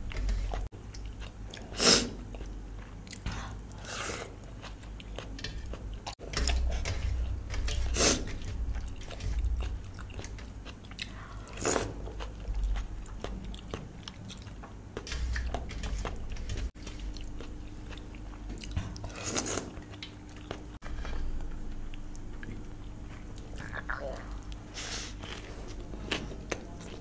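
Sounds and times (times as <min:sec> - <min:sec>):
person chewing food: 0:00.0 - 0:27.0.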